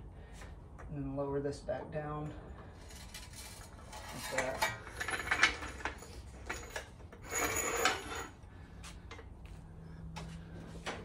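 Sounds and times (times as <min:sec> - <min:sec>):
metal scraping: 0:02.7 - 0:08.4
metal tools clinking: 0:02.7 - 0:08.4.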